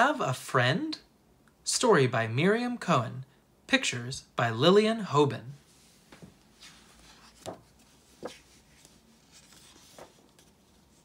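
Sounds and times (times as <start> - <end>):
paper pages rustling: 5.7 - 11.0.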